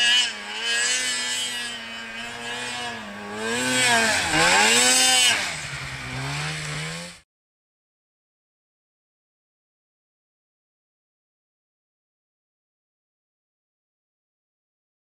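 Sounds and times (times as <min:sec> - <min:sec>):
snowmobile engine revving: 0:00.0 - 0:07.2.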